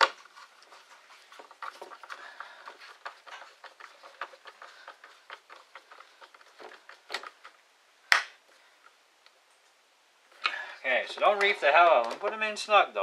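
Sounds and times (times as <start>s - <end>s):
screwdriver clicking and scraping: 0.0s - 7.6s.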